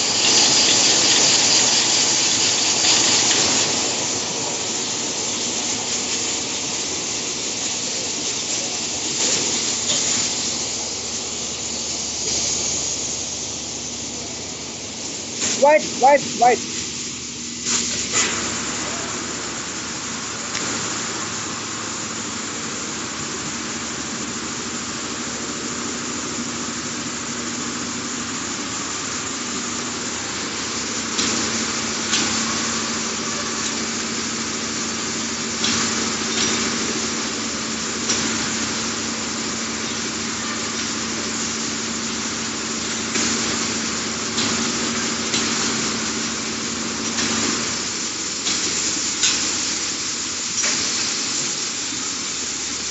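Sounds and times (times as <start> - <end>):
machinery humming and hissing: 0.0 - 52.9
sharp machinery clacks: 35.6 - 37.0, 44.3 - 45.9, 48.4 - 49.7.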